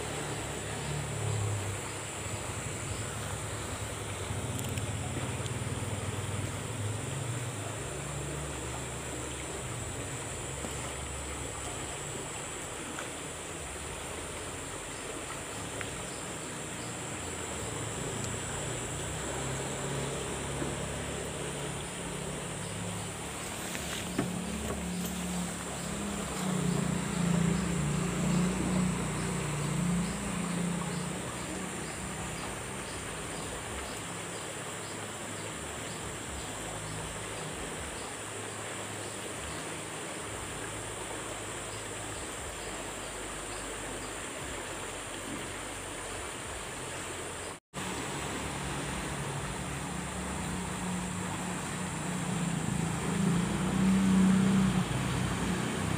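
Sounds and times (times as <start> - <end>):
flowing water hiss: 0.0 - 55.9
low engine hum: 0.0 - 55.9
insect chirring: 7.9 - 35.2.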